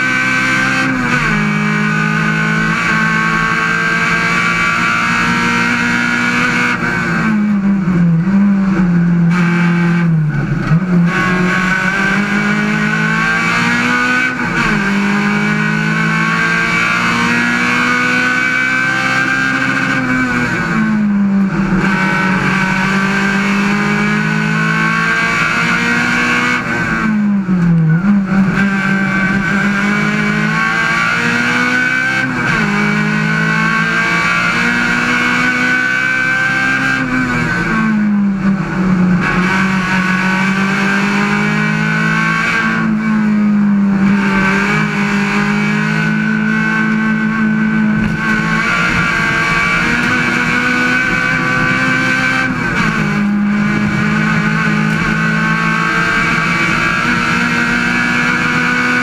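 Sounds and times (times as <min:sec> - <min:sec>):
race car engine revving hard: 0:00.0 - 0:59.0.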